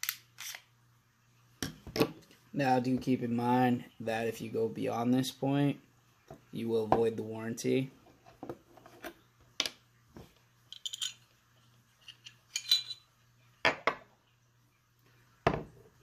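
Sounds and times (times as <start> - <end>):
pistol parts clicking and clinking: 10.7 - 11.2, 12.1 - 13.0.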